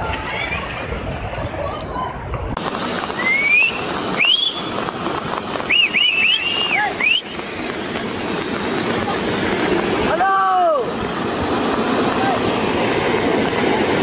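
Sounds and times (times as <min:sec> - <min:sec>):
mudflow rushing down a channel: 0:00.0 - 0:14.0
high whistle-like glides: 0:02.8 - 0:04.9, 0:05.7 - 0:07.7.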